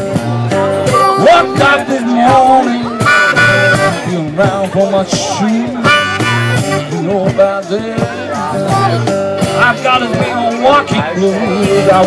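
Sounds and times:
acoustic guitar: 0.0s - 12.0s
cajon drum: 0.0s - 12.0s
harmonica bending notes: 1.0s - 4.6s, 5.4s - 7.3s.

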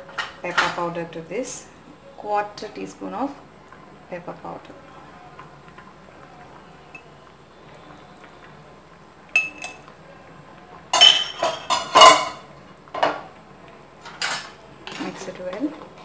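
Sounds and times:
spoon clinking: 9.4s - 9.8s, 11.0s - 12.4s
kitchen utensils clattering: 10.9s - 13.2s, 14.0s - 15.7s.

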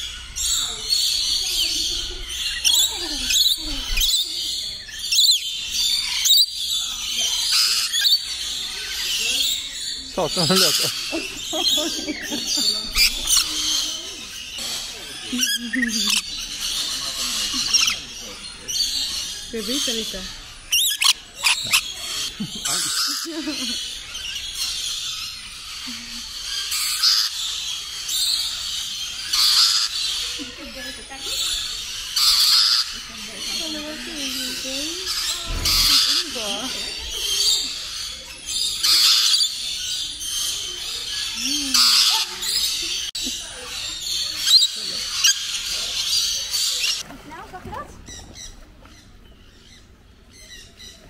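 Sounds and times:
lorikeets chattering: 0.0s - 47.4s, 48.0s - 51.0s
sharp high bird screeches: 35.1s - 36.4s.

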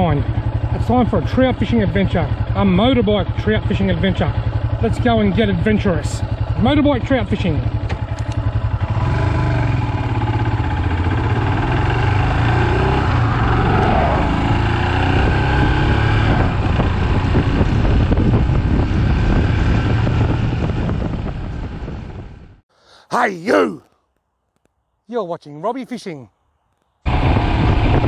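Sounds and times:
motorcycle engine accelerating: 0.0s - 22.6s
wind noise on microphone: 15.1s - 22.6s, 27.1s - 28.0s.

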